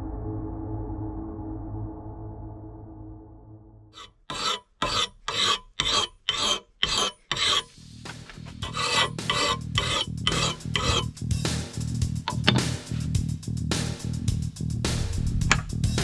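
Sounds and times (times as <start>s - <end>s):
file scraping metal: 4.0s - 11.2s, 12.3s - 13.0s.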